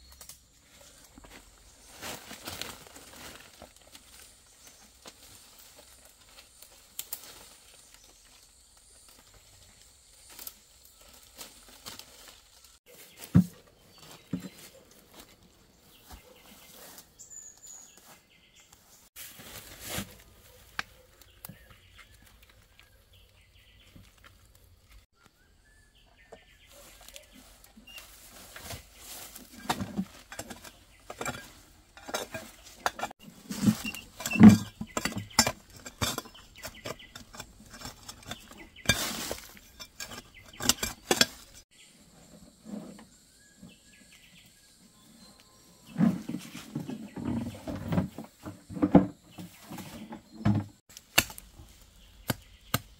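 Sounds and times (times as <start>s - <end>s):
hoe striking stony ground: 28.6s - 41.6s.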